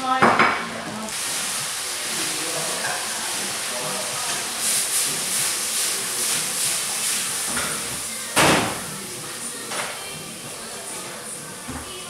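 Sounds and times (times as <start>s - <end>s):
food frying: 0.0s - 12.0s
sudden loud knock: 8.4s - 8.8s.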